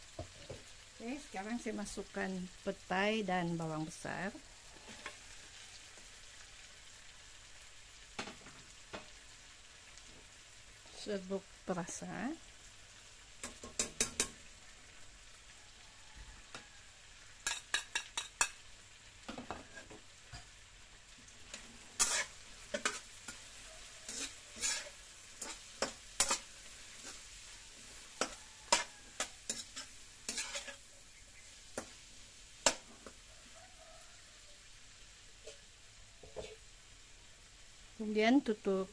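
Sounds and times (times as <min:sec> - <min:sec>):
light sizzle of frying: 0:00.0 - 0:38.9
metal spatula clinking on wok: 0:17.4 - 0:18.6.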